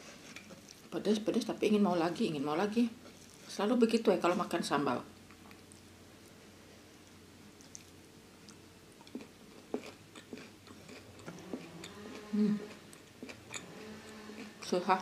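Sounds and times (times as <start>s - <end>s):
person chewing: 7.0s - 14.7s.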